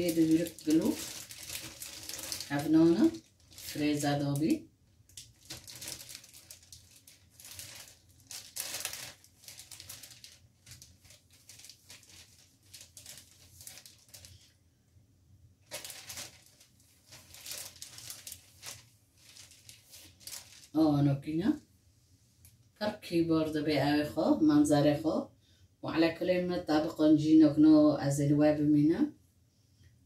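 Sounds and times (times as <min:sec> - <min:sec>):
plastic bag crinkling: 0:00.0 - 0:14.6, 0:15.6 - 0:20.8.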